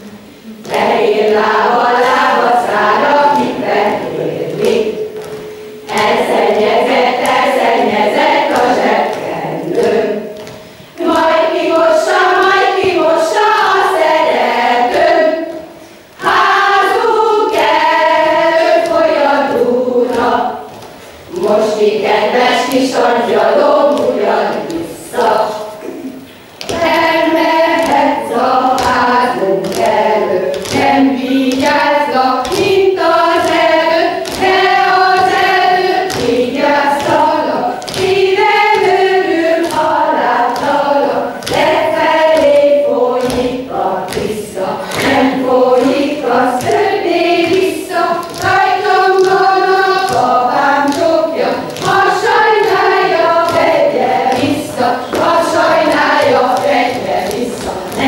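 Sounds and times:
women singing unaccompanied: 0:00.0 - 0:58.0
shoes stepping on stage: 0:01.7 - 0:25.6.

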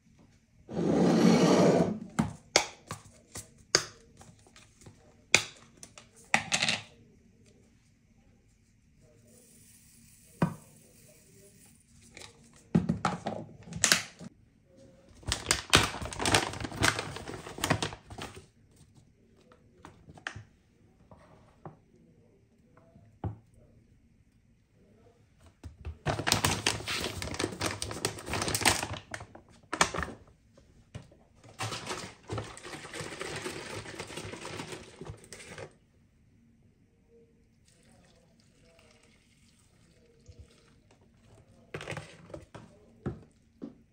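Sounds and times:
crinkly bag rustling: 0:15.2 - 0:18.5, 0:26.0 - 0:30.2, 0:31.4 - 0:35.7.

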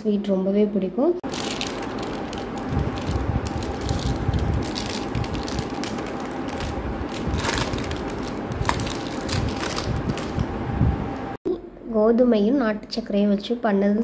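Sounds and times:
faint steady hum: 0:00.0 - 0:14.0
parchment paper crinkling: 0:01.2 - 0:10.4.

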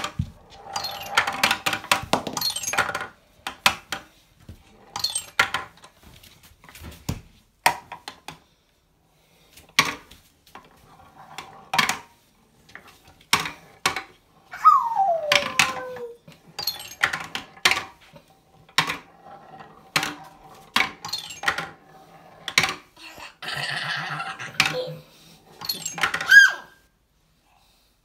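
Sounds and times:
wooden balls clacking on rails: 0:00.0 - 0:06.0, 0:09.7 - 0:12.1, 0:12.7 - 0:14.2, 0:14.9 - 0:25.0, 0:25.6 - 0:26.5
brief high squeal: 0:14.6 - 0:16.1
short falling voice: 0:14.6 - 0:16.2.

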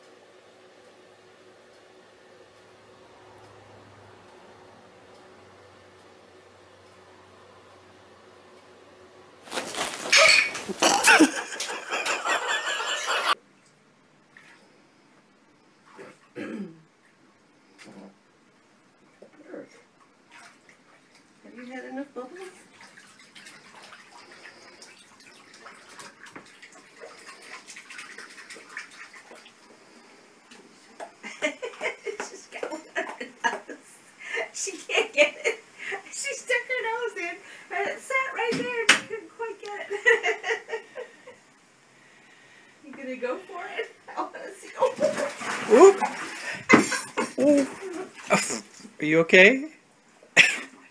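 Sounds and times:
water splashing: 0:09.5 - 0:11.8, 0:22.3 - 0:29.7, 0:44.8 - 0:48.9.

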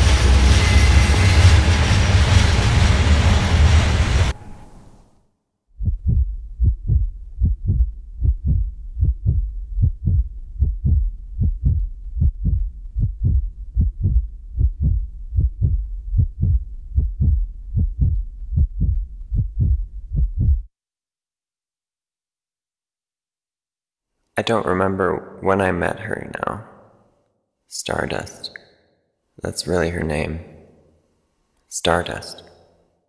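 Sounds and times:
heartbeat thuds: 0:05.8 - 0:20.7.

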